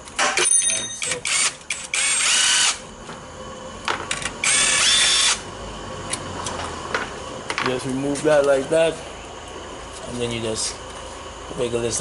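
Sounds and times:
cordless driver motor whine: 1.0s - 2.9s, 4.1s - 6.6s.

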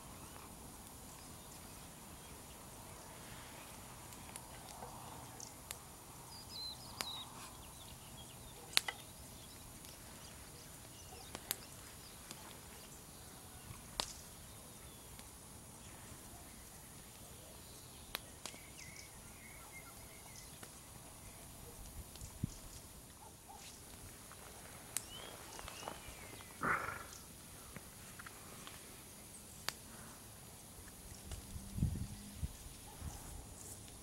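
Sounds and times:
campfire crackling and popping: 0.0s - 31.9s, 33.6s - 34.0s
faint outdoor background: 0.0s - 34.0s
faint bird calls: 24.5s - 27.7s.

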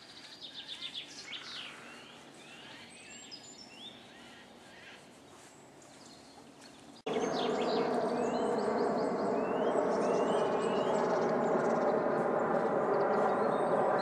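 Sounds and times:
birds chirping: 0.0s - 14.0s
steady buzzing drone: 7.1s - 14.0s.

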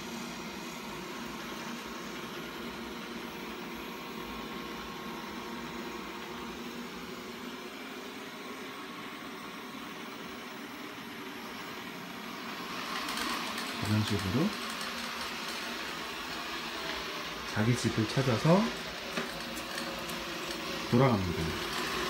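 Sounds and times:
robot vacuum motor whirring: 11.0s - 22.0s.

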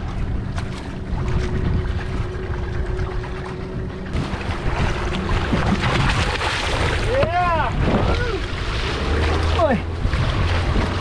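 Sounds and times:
steady low hum: 0.0s - 11.0s
water slapping against boat: 0.0s - 11.0s
wind buffeting microphone: 0.0s - 11.0s
fish splashing at surface: 4.2s - 7.1s.

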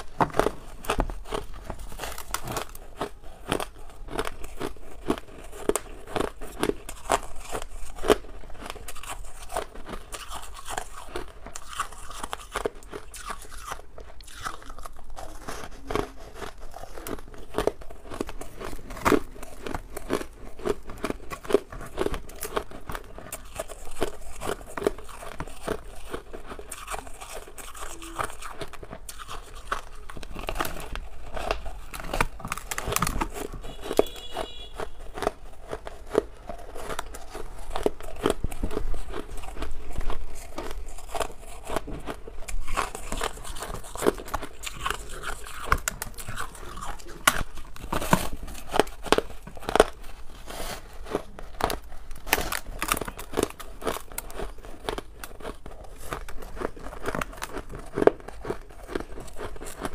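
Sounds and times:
ice being chewed: 0.0s - 59.9s.

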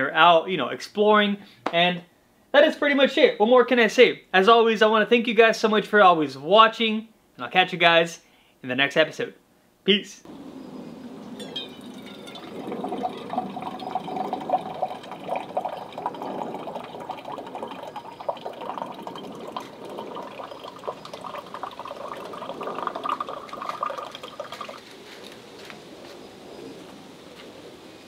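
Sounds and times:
water filling a steel tumbler: 11.2s - 25.0s.

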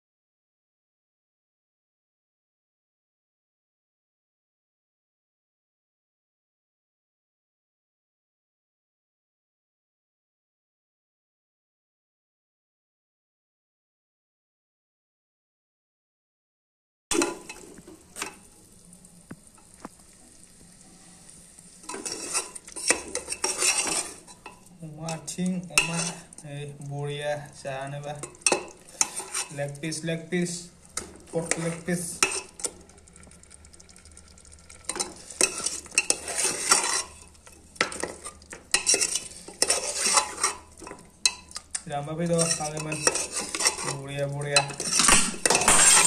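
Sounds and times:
ladle stirring and scraping pot: 17.1s - 18.5s, 20.8s - 26.6s, 27.5s - 46.0s
meat sizzling in a pot: 17.2s - 46.0s.

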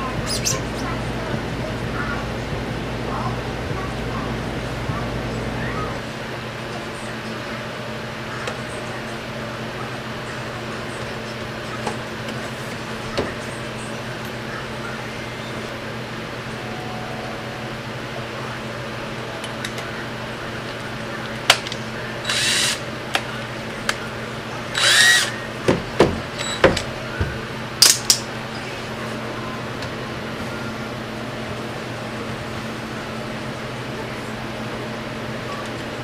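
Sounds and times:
power drill whirring: 22.2s - 22.8s, 24.8s - 25.4s.

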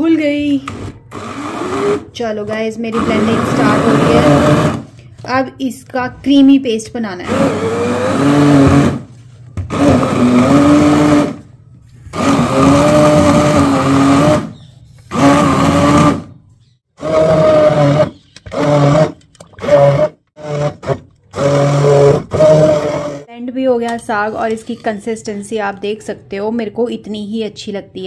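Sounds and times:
hand blender motor humming: 0.7s - 2.1s, 2.9s - 4.9s, 7.2s - 9.1s, 9.7s - 11.4s, 12.0s - 16.3s, 17.0s - 23.3s.

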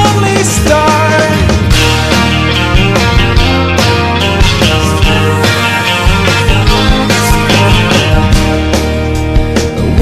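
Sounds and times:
pop love song: 0.0s - 10.0s.

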